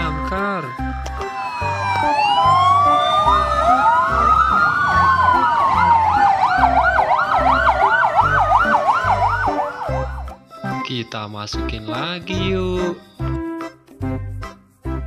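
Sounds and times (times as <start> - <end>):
fire engine sirens wailing: 1.0 - 10.4
siren fast yelp: 1.2 - 10.1.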